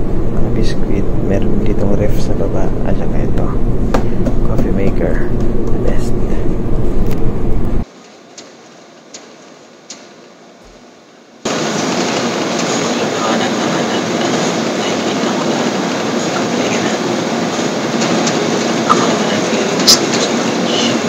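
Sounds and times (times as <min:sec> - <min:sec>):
loud rushing and rumbling noise: 0:00.0 - 0:07.9, 0:11.5 - 0:21.0
man's voice: 0:00.4 - 0:03.6, 0:04.4 - 0:06.6.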